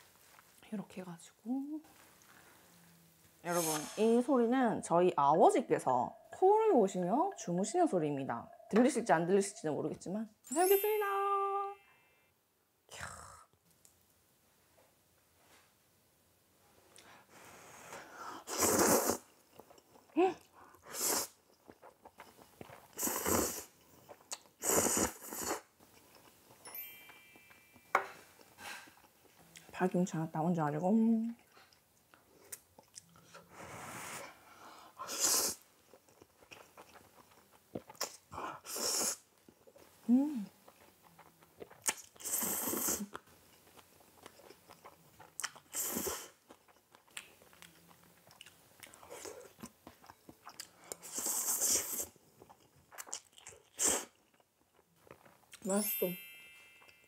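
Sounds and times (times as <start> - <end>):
loud noodle slurps: 18.4 - 19.3, 20.8 - 21.4, 22.9 - 23.8, 24.6 - 25.7, 35.0 - 35.6, 38.6 - 39.3, 42.2 - 43.1, 45.7 - 46.4, 51.0 - 52.2
noodle slurping: 18.4 - 19.3, 22.8 - 25.7
chewing: 19.0 - 26.6, 31.3 - 33.5, 35.6 - 38.8, 39.4 - 55.6
person humming: 40.1 - 40.5.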